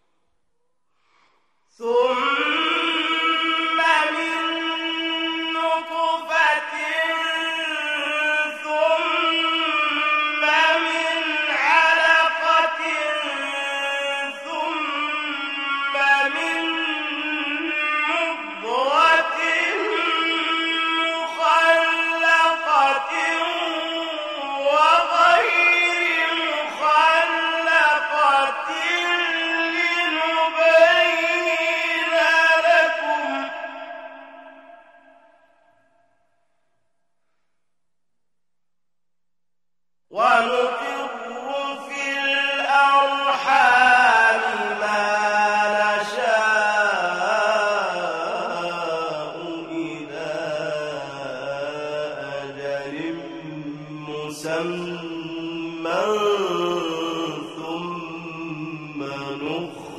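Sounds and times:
breath: 0:00.9 - 0:01.7
man chanting: 0:01.7 - 0:36.0, 0:40.1 - 0:59.9.

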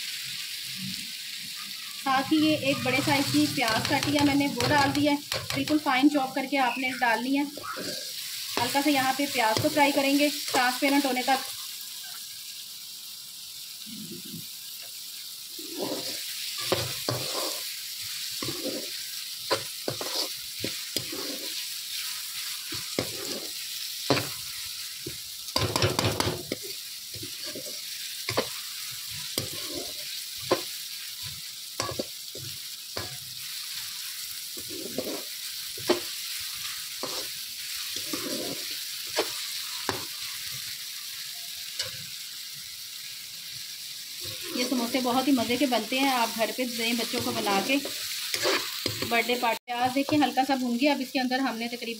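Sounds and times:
onion sizzling in hot oil: 0:00.0 - 0:51.9
spatula scraping pan: 0:02.1 - 0:06.3, 0:07.0 - 0:11.5, 0:15.6 - 0:40.5, 0:41.8 - 0:42.1, 0:44.2 - 0:50.4.

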